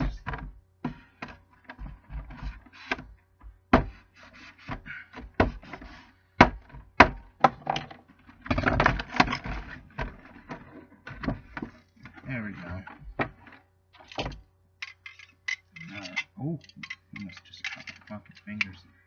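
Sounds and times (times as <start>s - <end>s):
scraping and rustling: 3.8s - 6.8s, 7.6s - 18.8s.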